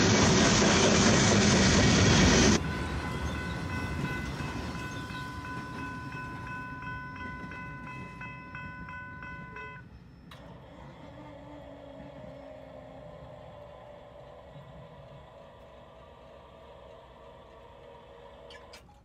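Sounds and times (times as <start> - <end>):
freight train passing: 0.0 - 18.4
crossing signal bell ringing: 2.6 - 10.4.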